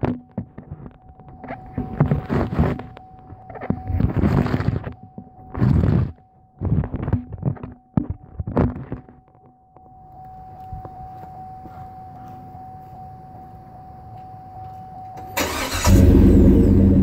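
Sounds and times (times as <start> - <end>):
engine exhaust revving: 15.4 - 17.0.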